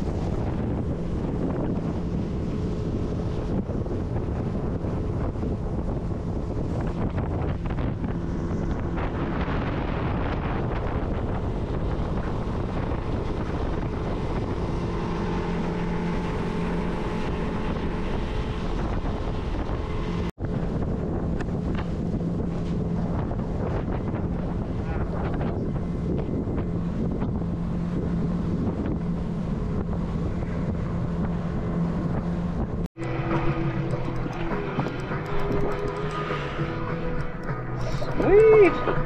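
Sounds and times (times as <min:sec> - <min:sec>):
boat motor humming: 0:00.0 - 0:39.0
wind buffeting microphone: 0:00.0 - 0:39.0.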